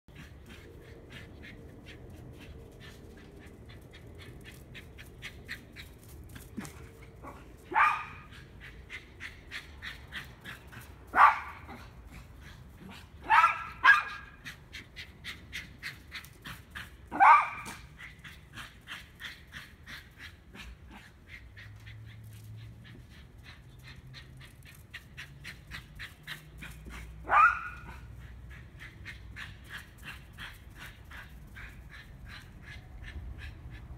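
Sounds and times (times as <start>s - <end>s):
small dog yipping barks: 7.7s - 8.3s, 11.1s - 11.7s, 13.2s - 14.4s, 17.1s - 17.9s, 27.2s - 28.1s.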